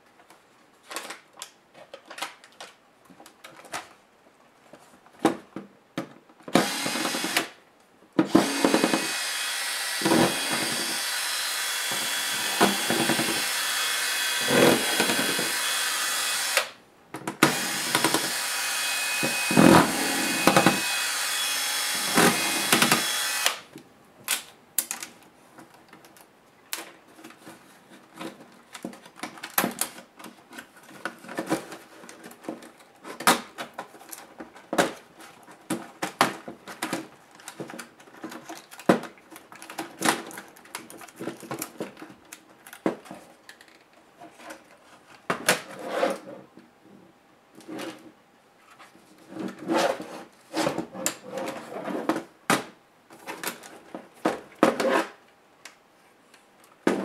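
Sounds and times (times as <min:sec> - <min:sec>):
cordless drill running: 0:06.6 - 0:07.5, 0:08.3 - 0:16.8, 0:17.4 - 0:23.6.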